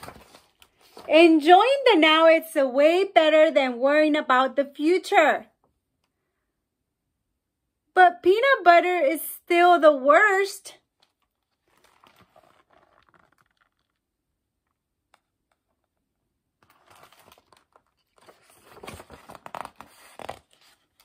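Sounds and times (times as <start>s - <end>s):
book pages rustling: 0.0s - 1.2s, 10.9s - 14.0s, 16.6s - 21.0s.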